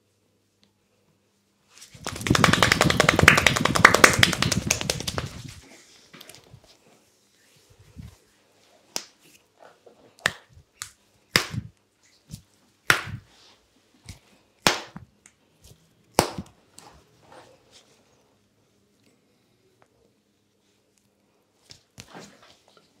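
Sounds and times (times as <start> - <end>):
hands smacking skin in massage: 1.8 - 5.6, 10.2 - 13.3, 16.2 - 16.5.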